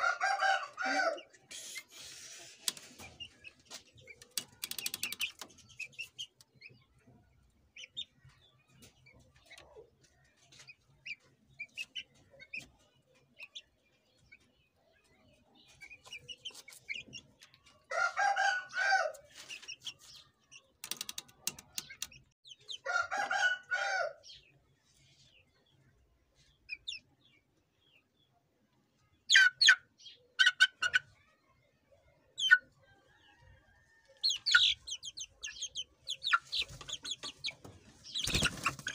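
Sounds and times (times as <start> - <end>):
chicken calls: 0.0 - 7.2, 29.2 - 31.3, 32.3 - 38.9
chicks peeping: 0.0 - 38.9
rattle of quick clicks: 4.2 - 5.4, 20.8 - 22.2.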